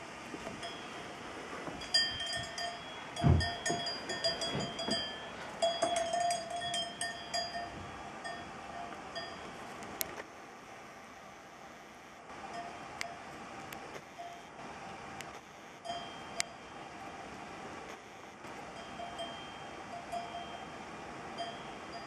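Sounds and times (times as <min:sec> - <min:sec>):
light metallic clinks ringing: 0:01.8 - 0:09.4
low thud: 0:03.2 - 0:05.1.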